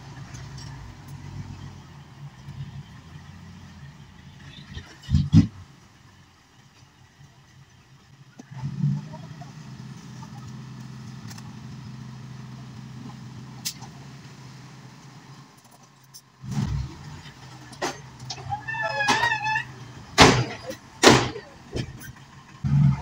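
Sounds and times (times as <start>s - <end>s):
diesel truck engine running: 0.0s - 23.0s.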